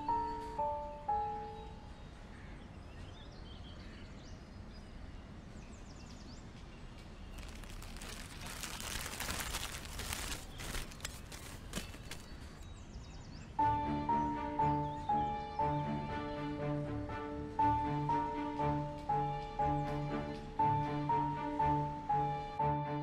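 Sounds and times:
wrapping crinkling: 7.3s - 12.6s.

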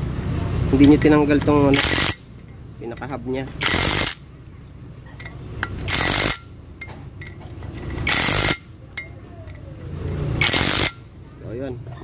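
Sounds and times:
impact wrench hammering: 1.4s - 2.2s, 3.6s - 4.2s, 5.6s - 9.1s, 10.4s - 11.0s.

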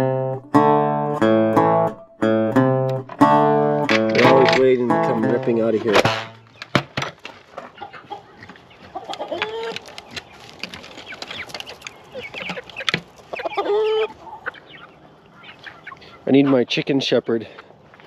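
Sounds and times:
chickens clucking: 3.0s - 18.0s
chicken drawn-out call: 7.5s - 16.6s.

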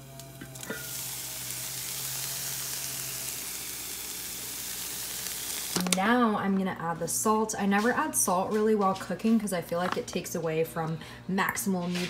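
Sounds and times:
meat sizzling in a pan: 0.0s - 5.9s.

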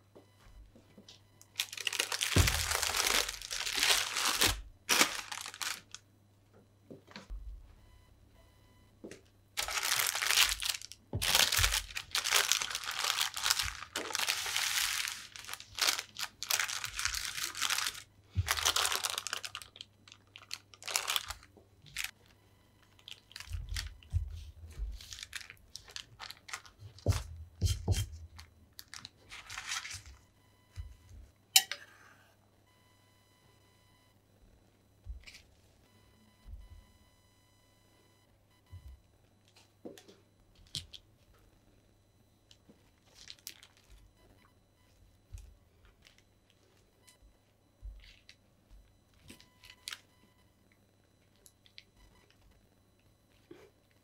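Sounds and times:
baking paper crinkling: 1.5s - 6.0s, 9.6s - 30.2s, 42.9s - 44.1s.

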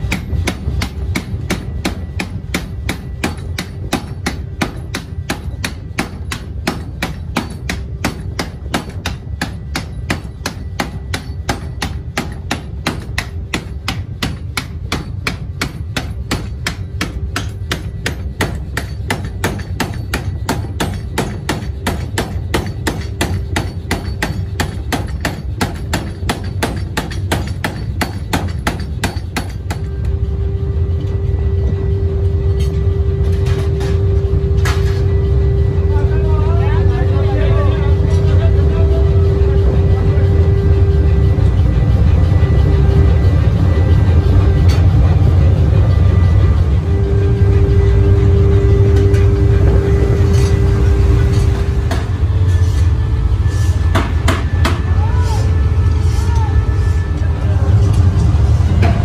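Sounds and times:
power hammer striking steel: 0.0s - 30.3s, 47.0s - 55.3s, 57.8s - 59.0s
machine running rumble: 0.0s - 59.0s.

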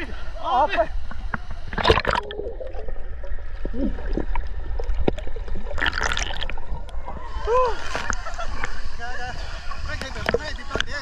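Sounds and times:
water sloshing and gurgling: 1.0s - 9.0s
water splashes: 1.2s - 10.7s.

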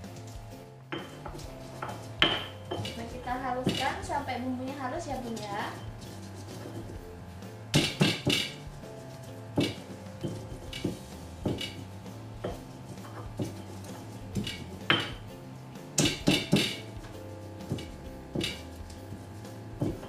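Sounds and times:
stone pestle knocking in mortar: 0.9s - 4.2s, 7.7s - 8.8s, 9.5s - 15.3s, 16.0s - 20.0s.

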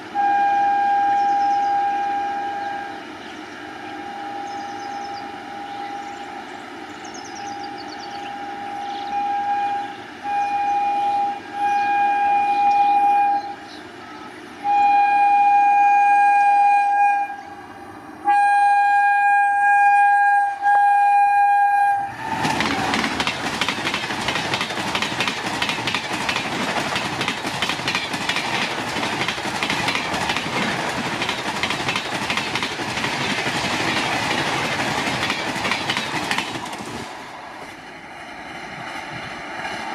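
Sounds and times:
locomotive horn blasts: 0.0s - 6.7s, 7.3s - 22.9s
passenger train passing at speed: 0.0s - 39.9s
wheels clacking over rails: 22.3s - 39.9s.

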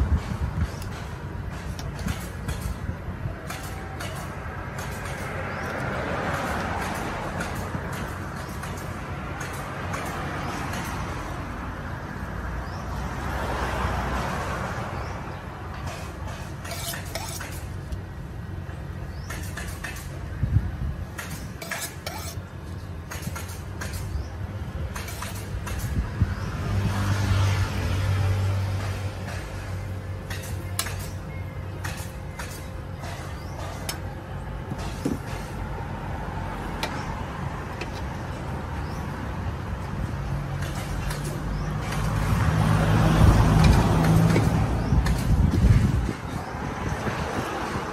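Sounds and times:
road traffic rumble: 0.0s - 47.9s
knife and utensils clinking: 16.6s - 17.7s, 21.6s - 22.4s.

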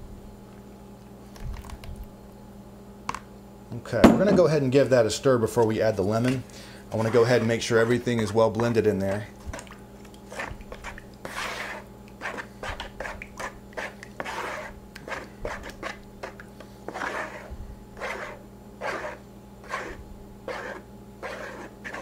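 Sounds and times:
spoon stirring sauce in bowl: 5.6s - 22.0s.

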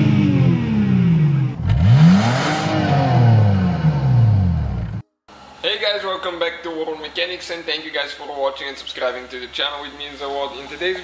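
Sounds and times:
car engine revving: 0.0s - 5.0s.

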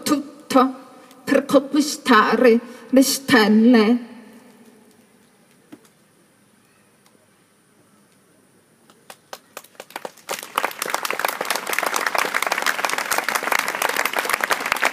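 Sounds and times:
audience applause: 9.1s - 14.9s.

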